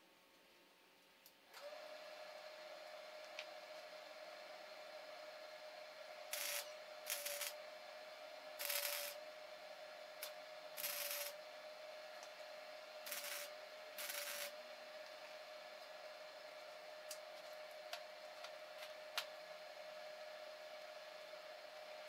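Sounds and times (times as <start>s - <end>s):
faint steady hum: 0.0s - 22.0s
welding arc crackling: 6.3s - 7.6s, 8.6s - 9.2s, 10.2s - 11.4s, 13.0s - 14.6s.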